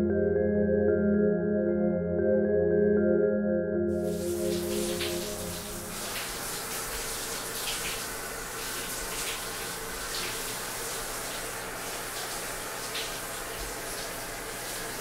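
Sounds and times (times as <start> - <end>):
shower water spraying: 4.0 - 15.0.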